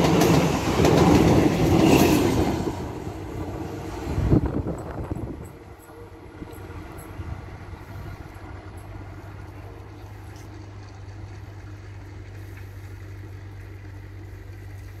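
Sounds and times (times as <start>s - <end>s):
low mechanical hum: 5.1s - 15.0s.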